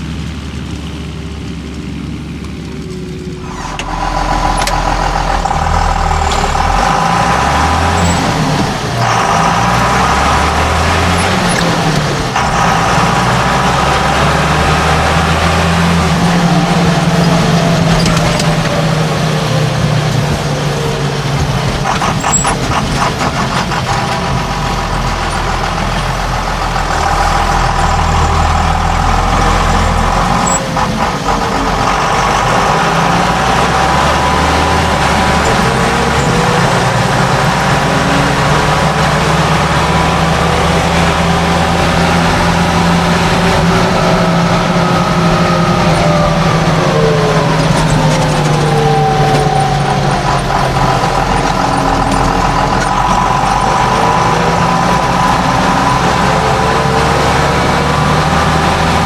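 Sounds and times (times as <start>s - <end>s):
tractor engine running: 0.0s - 59.0s
rattling clatter: 19.7s - 37.9s, 42.4s - 57.0s.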